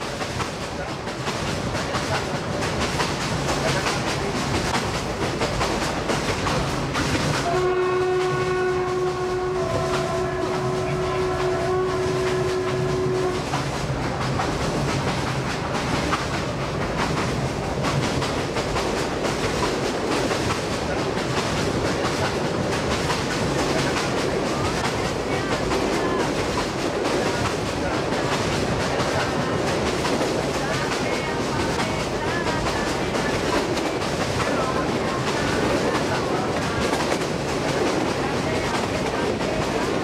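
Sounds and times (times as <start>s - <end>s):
train wheels on track: 0.0s - 40.0s
train horn: 7.3s - 13.6s.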